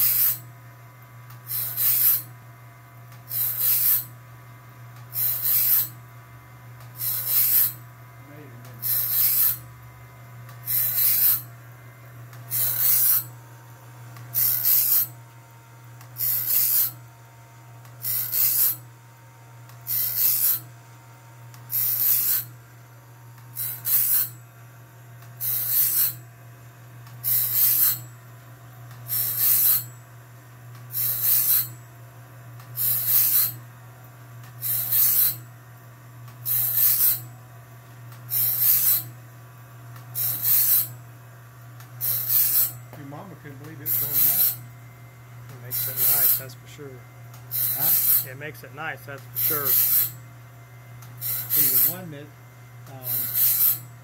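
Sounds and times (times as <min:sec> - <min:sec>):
grinding wheel on steel: 0:00.0 - 0:00.4, 0:01.5 - 0:02.3, 0:03.3 - 0:04.1, 0:05.1 - 0:06.0, 0:07.0 - 0:07.8, 0:08.7 - 0:09.7, 0:10.6 - 0:11.5, 0:12.5 - 0:13.4, 0:14.3 - 0:15.2, 0:16.2 - 0:17.0, 0:18.0 - 0:18.9, 0:19.9 - 0:20.7, 0:21.7 - 0:22.6, 0:23.6 - 0:24.4, 0:25.4 - 0:26.2, 0:27.2 - 0:28.1, 0:29.1 - 0:30.0, 0:30.9 - 0:31.8, 0:32.8 - 0:33.6, 0:34.6 - 0:35.5, 0:36.4 - 0:37.3, 0:38.3 - 0:39.1, 0:40.2 - 0:41.0, 0:42.0 - 0:44.6, 0:45.5 - 0:46.6, 0:47.5 - 0:48.4, 0:49.4 - 0:50.2, 0:51.2 - 0:52.2, 0:53.0 - 0:53.9
grind motor low hum: 0:00.0 - 0:30.0, 0:30.6 - 0:54.0.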